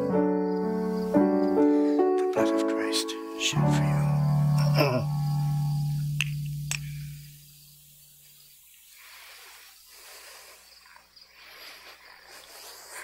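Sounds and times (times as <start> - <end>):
faint outdoor background noise: 0.0 - 13.0
electric keyboard low note: 3.6 - 7.6.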